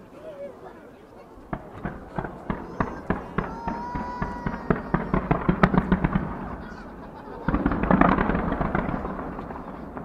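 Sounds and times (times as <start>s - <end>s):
fireworks crackling: 1.3s - 10.0s
loud firework boom: 7.4s - 10.0s.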